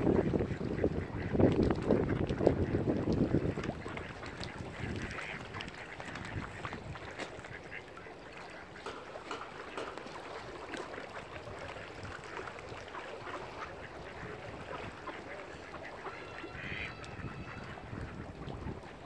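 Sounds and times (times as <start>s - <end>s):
ducks quacking: 0.0s - 19.0s
higher pitched duck call: 15.8s - 17.8s.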